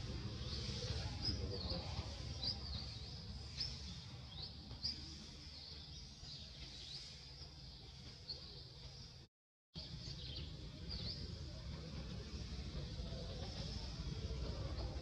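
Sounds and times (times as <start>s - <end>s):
small birds chirping: 0.2s - 11.6s.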